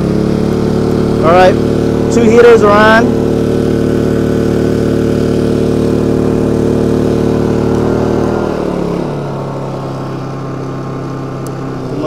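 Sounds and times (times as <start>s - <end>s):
generator engine running: 0.0s - 12.0s.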